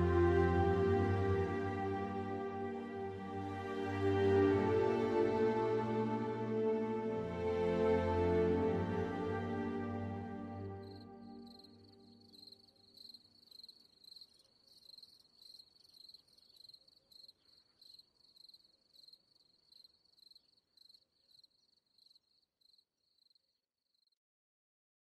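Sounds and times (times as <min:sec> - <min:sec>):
cricket chirping: 0:10.8 - 0:24.2.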